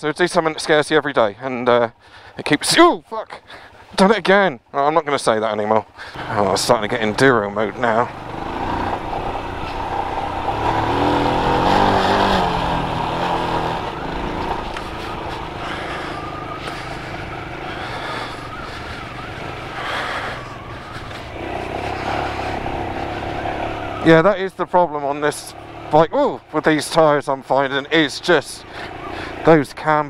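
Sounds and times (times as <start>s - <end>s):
single-cylinder motorcycle engine running: 5.9s - 24.1s, 25.4s - 26.2s.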